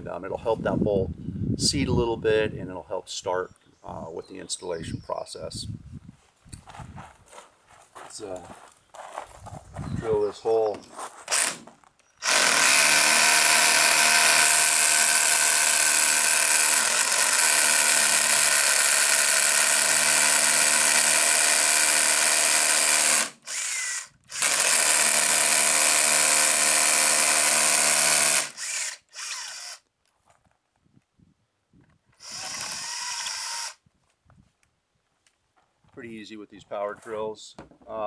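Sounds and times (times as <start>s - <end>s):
power drill boring into concrete: 11.3s - 29.8s, 32.2s - 33.8s.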